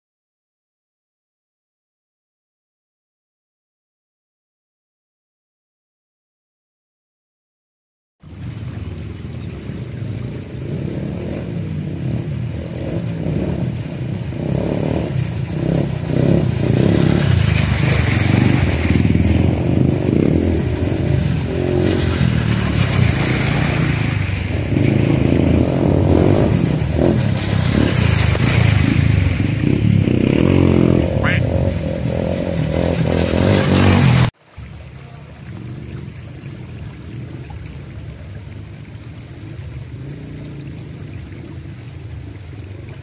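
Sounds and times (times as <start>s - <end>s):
water splashing under wheels: 8.2s - 43.0s
dirt bike engines revving: 9.3s - 34.3s.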